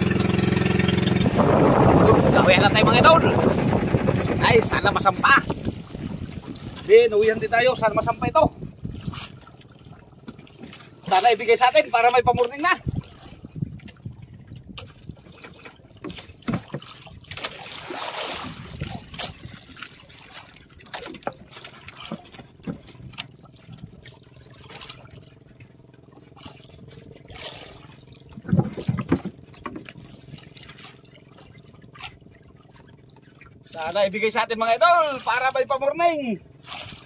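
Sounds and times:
water trickling and splashing: 0:00.0 - 0:37.0
light knocks on boat: 0:14.8 - 0:17.4, 0:28.4 - 0:30.1.

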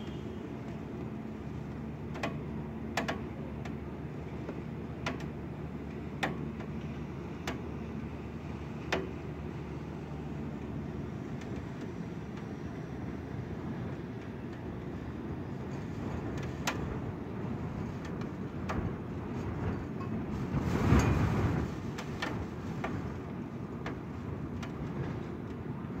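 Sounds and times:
wind rumbling: 0:15.8 - 0:23.3.

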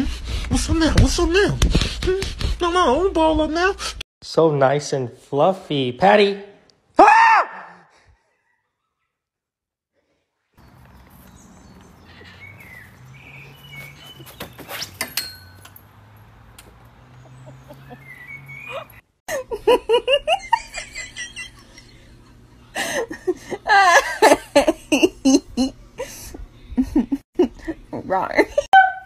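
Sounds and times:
hearty laughter: 0:17.2 - 0:27.9.

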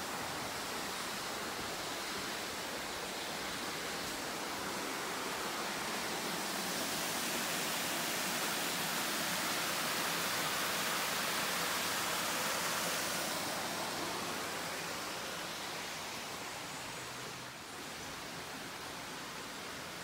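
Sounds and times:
small waterfall splashing into pool: 0:00.0 - 0:15.5.

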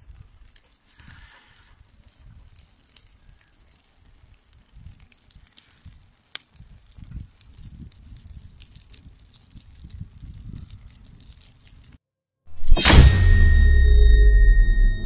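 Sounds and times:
fire popping: 0:00.0 - 0:12.0
low fire rumble: 0:00.0 - 0:12.0
wood fire crackling: 0:00.0 - 0:12.0.

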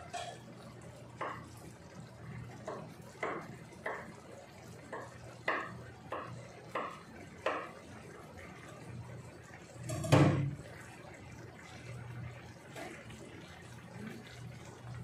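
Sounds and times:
rice boiling in a pan: 0:00.0 - 0:15.0.

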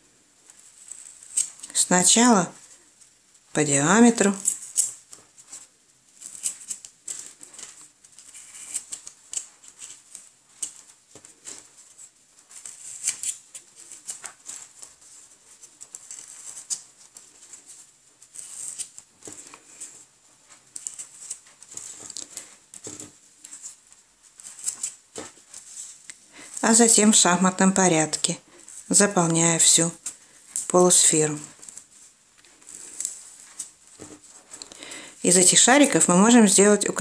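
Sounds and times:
small clicks and scratches: 0:00.5 - 0:01.8, 0:04.4 - 0:26.2.

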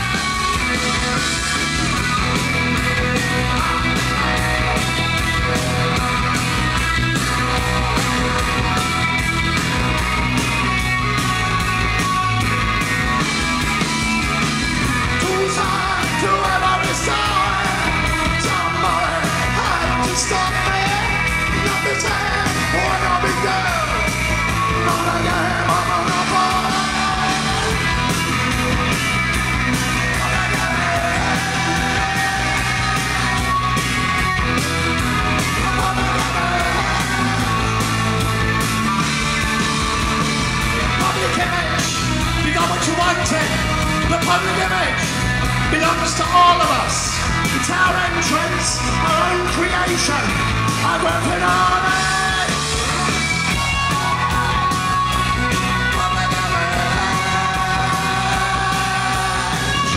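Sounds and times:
live post-punk band: 0:00.0 - 0:59.9
man shouting vocals: 0:15.2 - 0:24.1, 0:41.0 - 0:45.1, 0:45.7 - 0:53.1.

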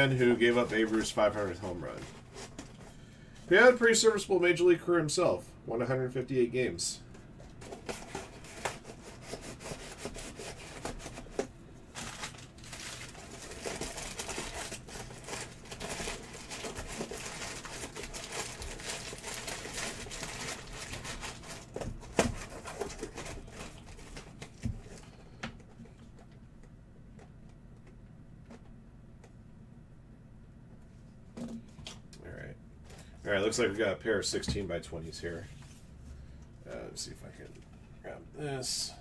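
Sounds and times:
packing paper crinkling: 0:07.5 - 0:25.2.

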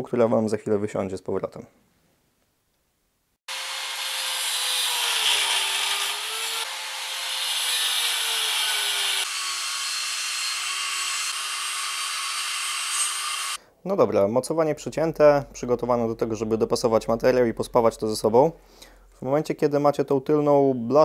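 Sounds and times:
angle grinder cutting metal: 0:03.5 - 0:13.6.

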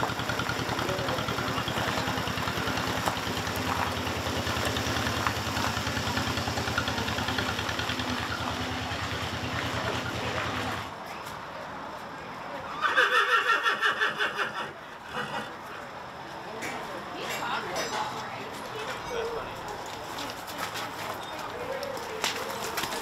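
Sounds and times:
tractor engine chugging: 0:00.0 - 0:10.9.

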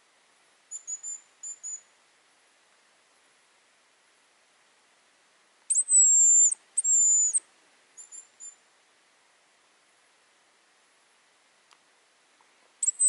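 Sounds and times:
high thin decoy whistles: 0:05.7 - 0:07.4.

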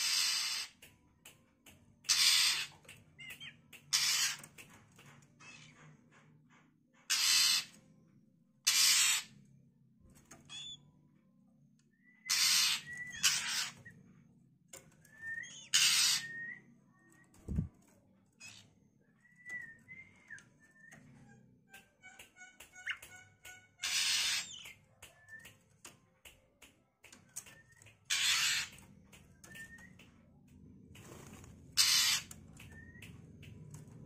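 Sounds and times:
bird harsh rasping calls: 0:00.0 - 0:00.8, 0:02.1 - 0:04.4, 0:07.1 - 0:07.7, 0:08.6 - 0:09.3, 0:12.2 - 0:13.8, 0:15.5 - 0:16.5, 0:22.2 - 0:24.7, 0:28.1 - 0:28.8, 0:31.8 - 0:32.3.

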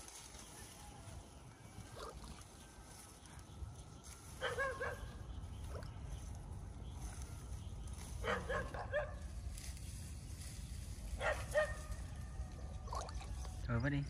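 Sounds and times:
dog yapping: 0:08.2 - 0:09.2.

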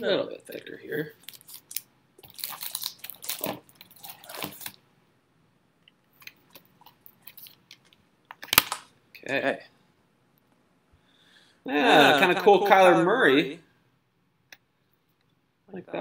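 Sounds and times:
trading cards and packaging rustling: 0:00.4 - 0:04.8, 0:06.2 - 0:08.9.

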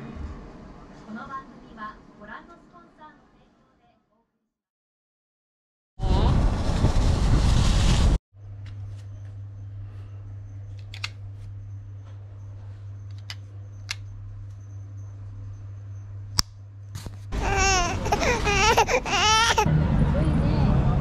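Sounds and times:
steady low hum: 0:08.4 - 0:21.0.

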